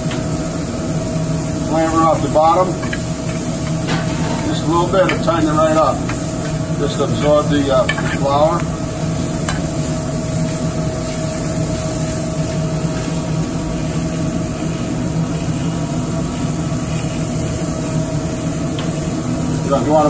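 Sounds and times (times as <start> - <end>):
kitchen ventilation drone: 0.0 - 20.0
onions frying in a pan: 0.0 - 20.0
spoon scraping a pan: 7.8 - 8.6.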